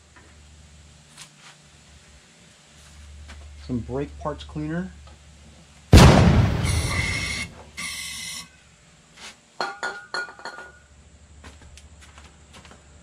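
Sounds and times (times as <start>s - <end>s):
loud hit: 6.0s - 7.5s.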